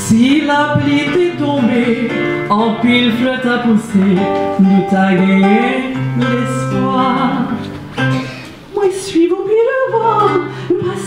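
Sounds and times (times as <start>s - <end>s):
woman singing: 0.0s - 7.8s, 8.7s - 11.0s
acoustic guitar: 0.0s - 11.0s.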